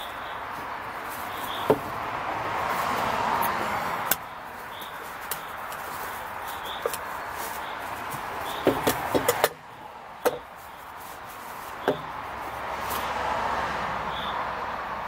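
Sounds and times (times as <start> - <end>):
road traffic rushing: 0.0 - 15.0
gas stove and pouch handled: 0.5 - 2.0, 4.0 - 13.0.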